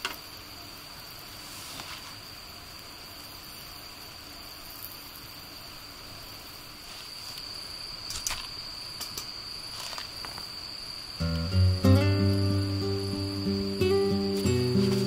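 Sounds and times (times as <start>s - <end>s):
night insects chorus: 0.0s - 15.0s
wood fire crackles: 11.2s - 15.0s.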